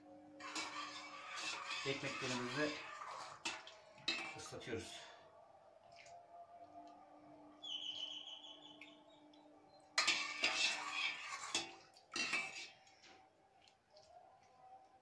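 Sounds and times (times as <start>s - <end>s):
metal ladle scraping in pot: 0.4s - 5.0s, 10.0s - 12.9s.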